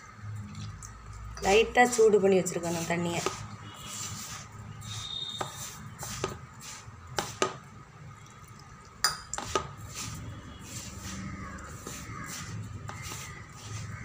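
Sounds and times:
gritty rustle of flour: 1.8s - 7.5s, 9.4s - 14.0s.

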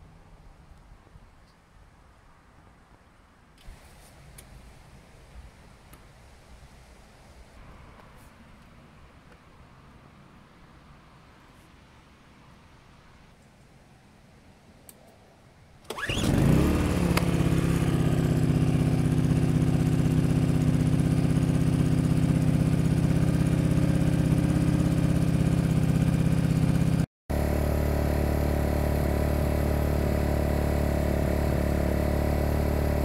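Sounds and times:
generator engine pull-started: 15.8s - 21.4s, 27.3s - 33.0s.

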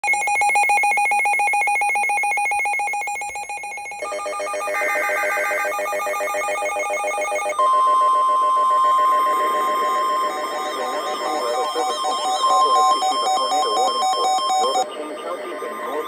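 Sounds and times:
fast warbling alarm beep: 0.0s - 16.0s
pulsing electronic alarms: 0.0s - 16.0s
steady long alert tone: 3.3s - 16.0s.

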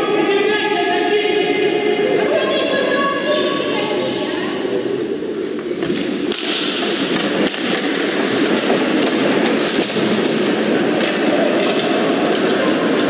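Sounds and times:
arena crowd din: 0.0s - 13.0s
skates scraping ice: 5.3s - 13.0s
stick hitting puck: 5.8s - 13.0s.

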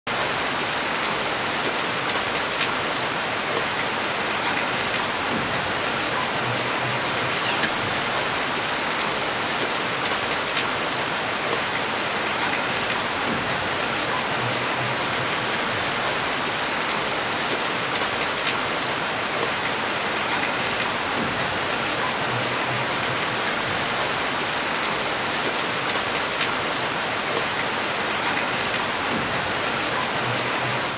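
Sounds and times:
heavy rain: 0.1s - 30.9s
raindrops ticking: 20.3s - 24.2s.

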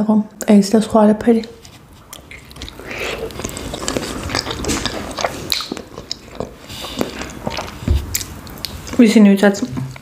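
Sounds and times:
chewing dumpling: 1.4s - 9.0s.

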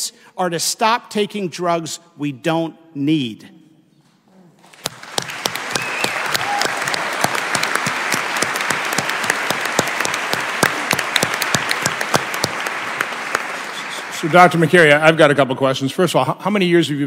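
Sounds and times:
audience applauding: 4.7s - 15.0s.

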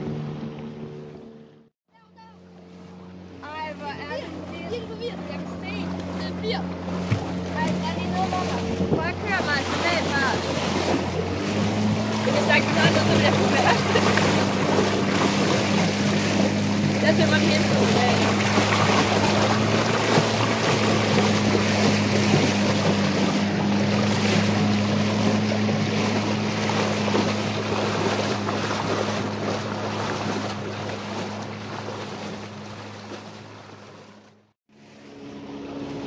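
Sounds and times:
boat motor humming: 0.0s - 36.0s
water splashing along hull: 0.0s - 36.0s
wind on microphone: 7.0s - 31.4s.

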